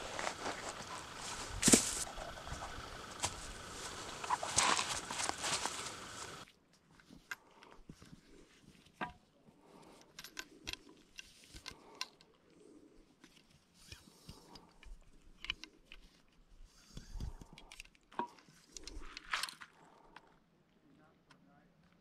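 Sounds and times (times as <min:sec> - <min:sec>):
cloth rustling: 0:00.0 - 0:06.4.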